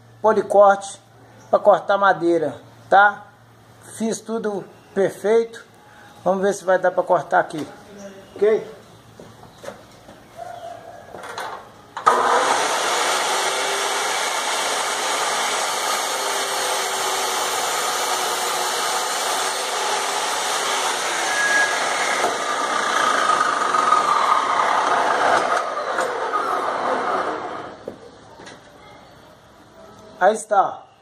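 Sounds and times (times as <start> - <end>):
cut-off saw cutting wood: 12.0 - 27.8.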